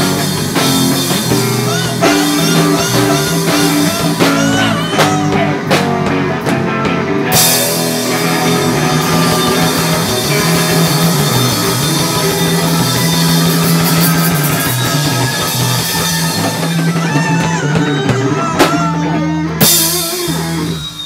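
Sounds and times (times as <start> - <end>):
rock band playing loudly: 0.0 - 21.0.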